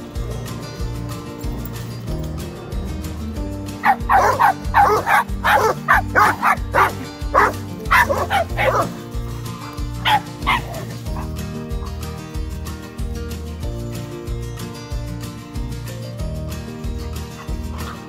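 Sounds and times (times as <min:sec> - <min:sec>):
background music with steady beat: 0:00.0 - 0:18.0
dog barking: 0:03.8 - 0:09.0, 0:10.0 - 0:11.3.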